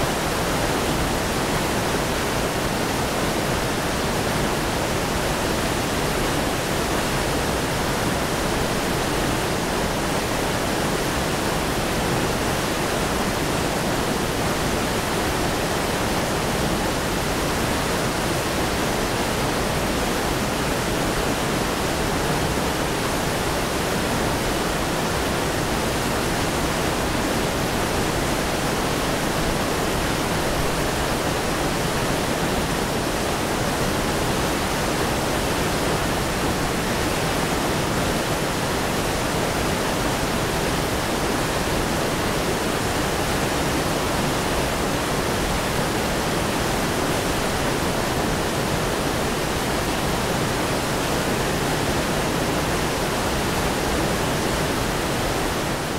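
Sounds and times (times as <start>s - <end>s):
waterfall rushing: 0.0s - 55.9s.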